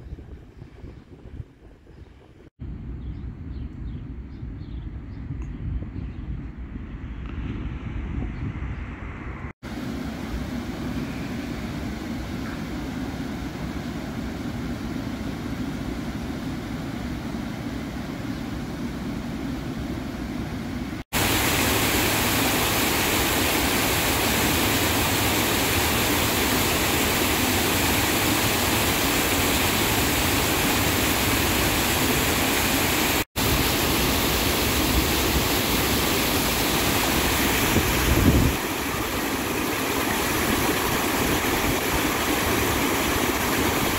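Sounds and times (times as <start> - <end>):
meltwater rushing over creek dam: 21.1 - 43.9.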